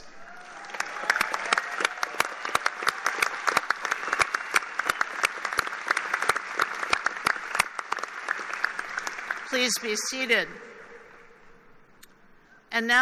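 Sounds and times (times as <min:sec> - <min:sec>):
crowd applauding: 0:00.0 - 0:09.9
sharp individual claps: 0:00.6 - 0:09.5.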